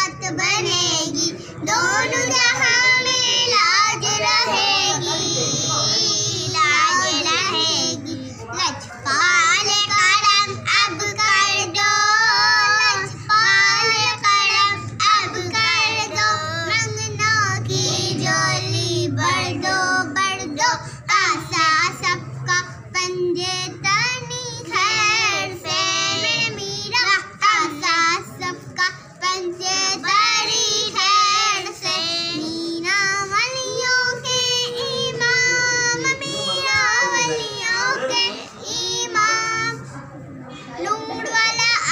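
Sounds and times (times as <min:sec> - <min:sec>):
girls singing together: 0:00.0 - 0:41.9.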